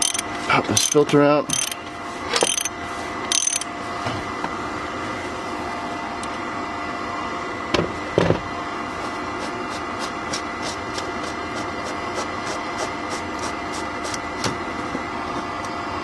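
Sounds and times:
ratchet wrench clicking: 0:00.0 - 0:00.2, 0:00.8 - 0:02.7, 0:03.3 - 0:03.7
steady background hum: 0:00.0 - 0:16.0.

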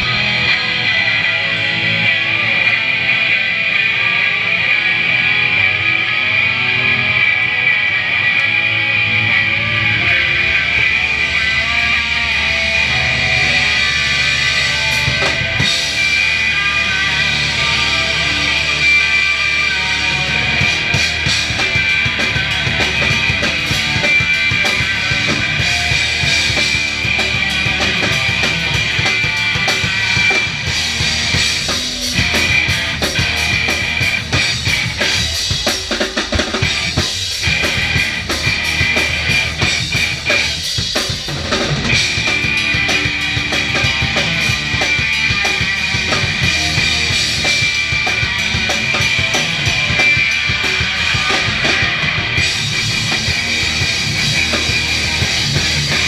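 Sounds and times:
hardcore punk band playing live: 0:00.0 - 0:56.0.

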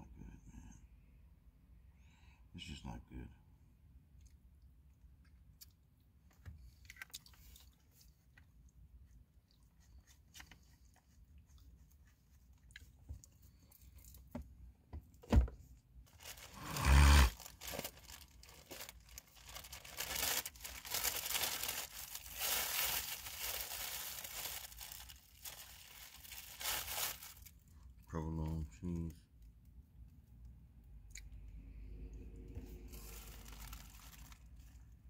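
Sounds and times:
packaging torn and crinkled: 0:16.1 - 0:27.6, 0:32.9 - 0:34.6.

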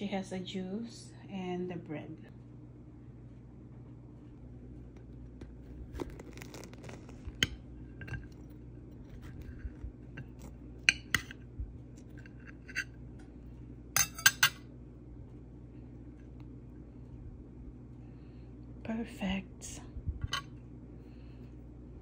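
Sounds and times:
knife sawing through crusty bread: 0:05.8 - 0:07.4
knife clinking against plate: 0:14.0 - 0:14.6.

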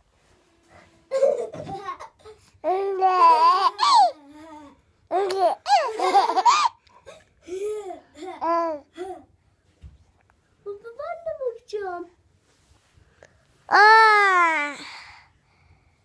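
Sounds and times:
baby laughing with squeals: 0:03.2 - 0:04.2, 0:05.6 - 0:06.8.

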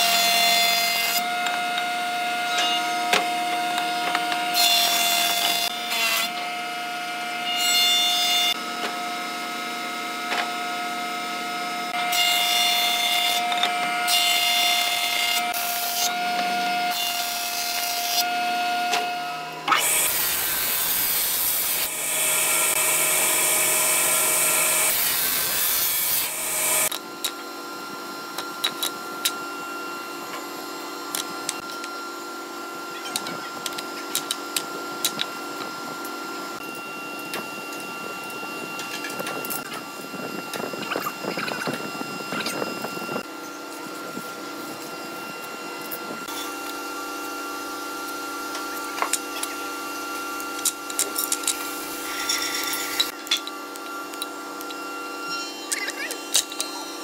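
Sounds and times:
planer cutting wood: 0:00.0 - 0:57.0
loud hissy machine noise: 0:19.4 - 0:32.9, 0:33.6 - 0:57.0.

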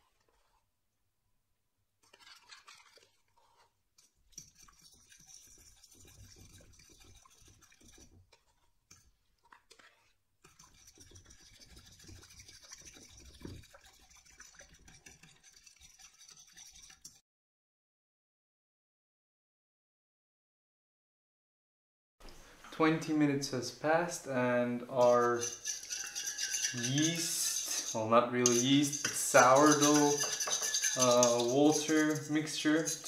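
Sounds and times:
fork scraping plastic cup: 0:00.0 - 0:00.6, 0:02.0 - 0:17.2, 0:25.0 - 0:33.0
fork stirring liquid in metal bowl: 0:00.0 - 0:00.7, 0:02.0 - 0:17.2, 0:24.9 - 0:33.0.

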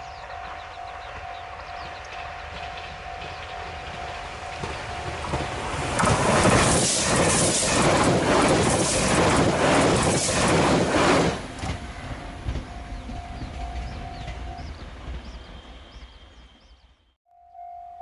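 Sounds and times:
train wheels clattering over rail joints: 0:01.8 - 0:15.6.

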